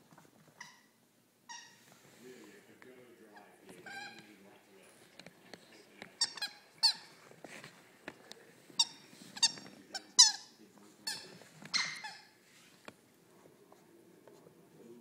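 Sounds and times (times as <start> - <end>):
squeaky toy squeaks: 0.6 - 1.8, 3.8 - 4.3, 6.2 - 7.1, 8.8 - 12.4.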